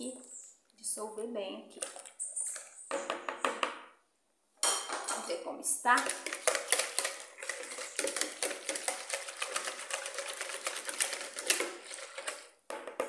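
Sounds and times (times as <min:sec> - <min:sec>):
wire whisk beating in bowl: 0:05.9 - 0:12.5.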